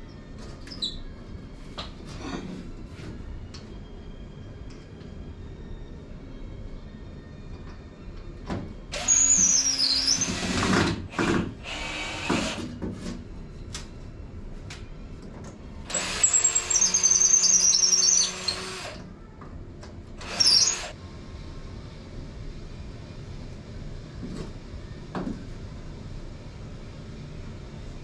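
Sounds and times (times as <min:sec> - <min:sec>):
power drill whining: 0:09.0 - 0:12.6, 0:15.9 - 0:19.0, 0:20.2 - 0:21.0.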